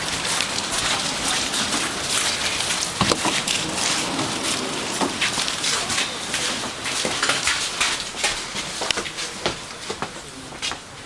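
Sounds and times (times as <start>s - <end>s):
footsteps on snowy platform: 0.0s - 11.0s
steady hiss with crackling: 0.0s - 11.0s.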